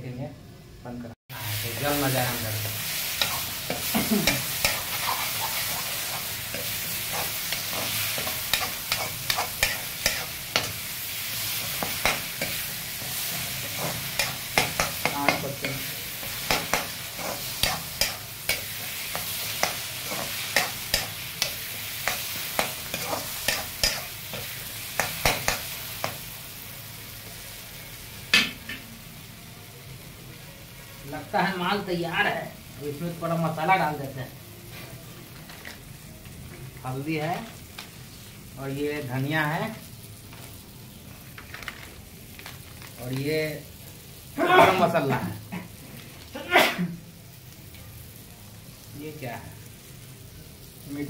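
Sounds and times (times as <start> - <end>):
food sizzling in hot oil: 1.3 - 51.0
ladle scraping and clacking on wok: 3.2 - 10.8, 11.6 - 26.2.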